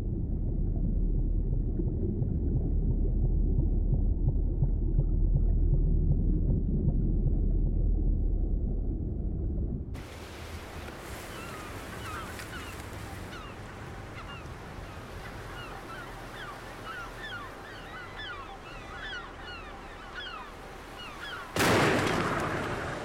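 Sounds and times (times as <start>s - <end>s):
low steady rumble: 0.0s - 10.0s
seabirds calling: 10.6s - 22.3s
loud boom: 21.6s - 23.0s.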